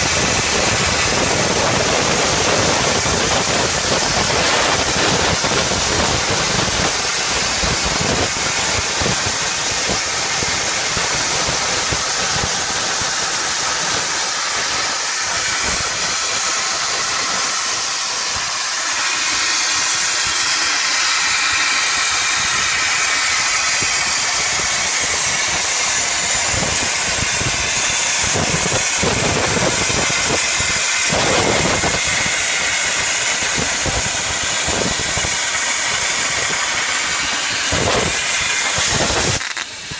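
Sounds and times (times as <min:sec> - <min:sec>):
plasma torch cutting metal: 0:00.0 - 0:39.9.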